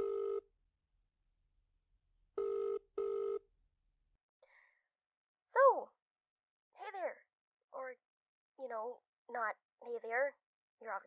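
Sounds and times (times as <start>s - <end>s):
telephone ringback tone: 0.0s - 0.4s, 2.4s - 3.4s.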